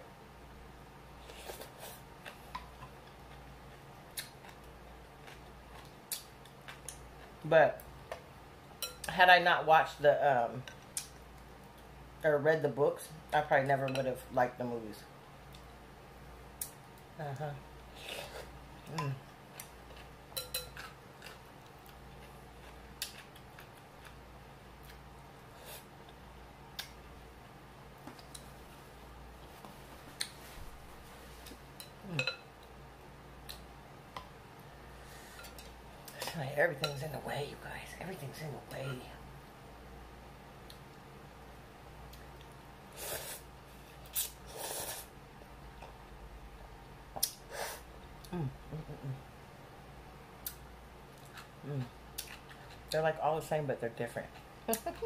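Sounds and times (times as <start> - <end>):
person humming with full mouth: 32.0 - 32.3, 48.2 - 49.2.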